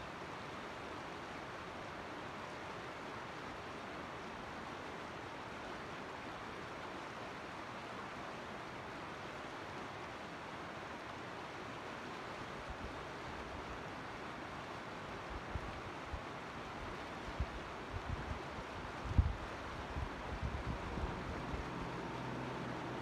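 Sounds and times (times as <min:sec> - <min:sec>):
creek water rushing: 0:00.0 - 0:23.0
wind bumps on microphone: 0:19.0 - 0:21.2.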